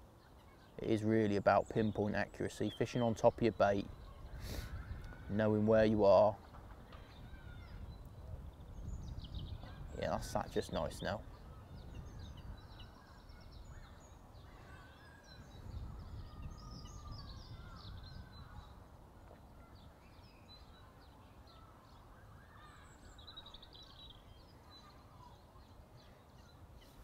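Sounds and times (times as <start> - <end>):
small birds chirping: 0.0 - 27.0
wind rumble on microphone: 3.8 - 20.8.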